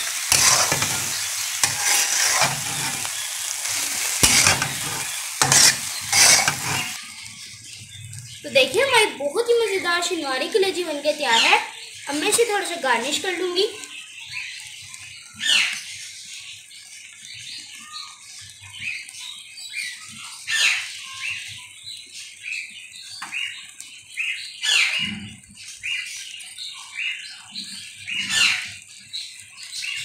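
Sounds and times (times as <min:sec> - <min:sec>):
bird calls sweeping down: 0:00.0 - 0:07.0
birds chirping: 0:00.0 - 0:15.8.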